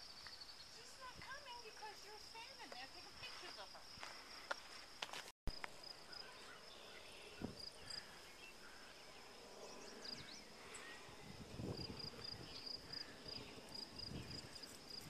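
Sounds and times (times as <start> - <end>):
faint bird chirps: 6.0 - 11.2.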